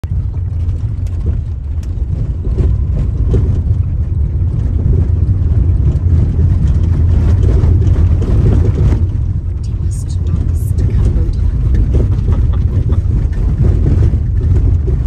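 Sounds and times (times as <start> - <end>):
tyres and engine rumbling: 0.0 - 15.0.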